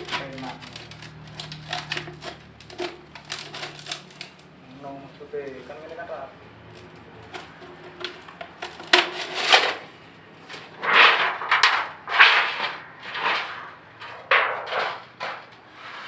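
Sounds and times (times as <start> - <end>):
rasping scrapes on sheet metal: 0.0 - 4.4, 7.2 - 9.9, 10.5 - 16.0.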